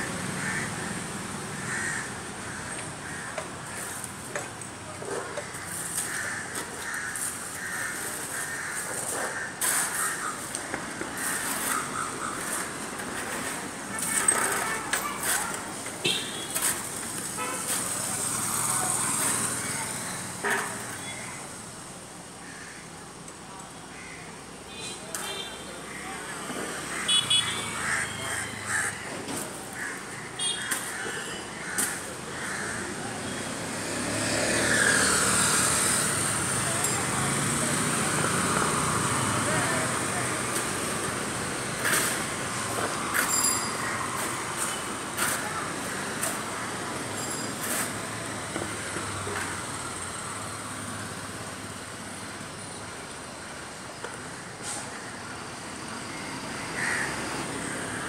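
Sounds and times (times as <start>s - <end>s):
street traffic: 0.0s - 58.0s
crows cawing: 0.4s - 0.9s, 1.5s - 4.0s, 5.1s - 12.6s, 22.4s - 22.9s, 23.9s - 24.3s, 25.9s - 29.1s, 29.7s - 33.2s, 43.7s - 46.8s, 56.6s - 58.0s
motorbike engines approaching: 16.7s - 21.1s, 32.0s - 52.6s.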